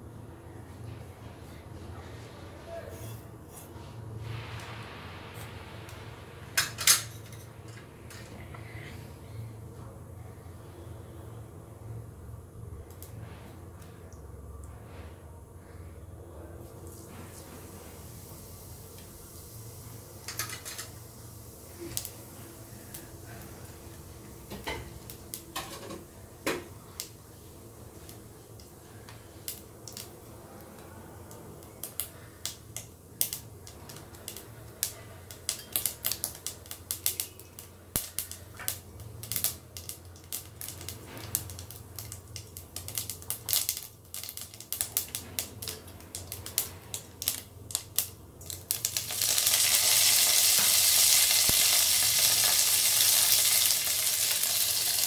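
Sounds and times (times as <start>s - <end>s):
loud steady sizzle: 0.0s - 55.0s
seeds popping in hot oil: 20.2s - 30.3s, 31.2s - 55.0s.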